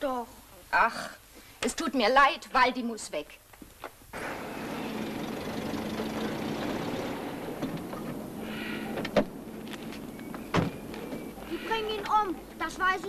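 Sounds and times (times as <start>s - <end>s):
car engine idling: 4.2s - 13.0s.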